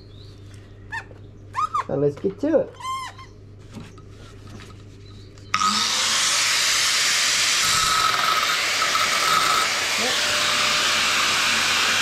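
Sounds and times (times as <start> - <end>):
angle grinder whining: 5.5 - 12.0.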